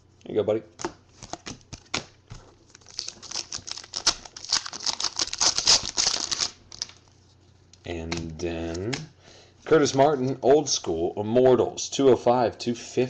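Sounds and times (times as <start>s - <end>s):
trading cards flipped by hand: 0.8s - 4.2s.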